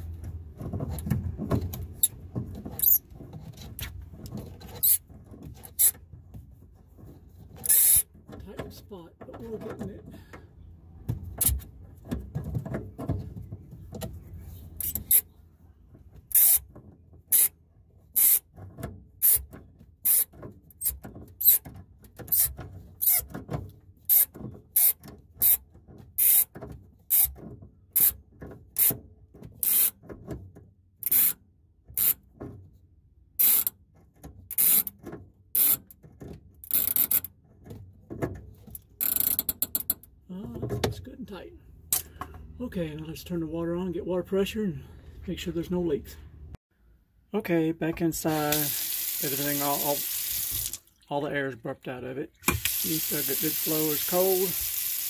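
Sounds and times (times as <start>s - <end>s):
pliers rasping on a nut: 7.6s - 8.0s, 14.8s - 15.3s, 16.3s - 16.6s, 18.2s - 18.4s, 31.0s - 31.4s, 33.4s - 33.7s, 34.5s - 34.9s.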